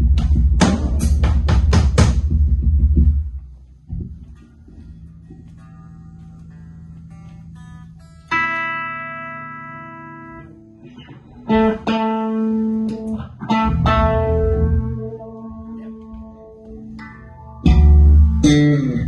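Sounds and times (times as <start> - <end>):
bass guitar: 0.0 - 19.0
electric guitar chords: 4.2 - 19.0.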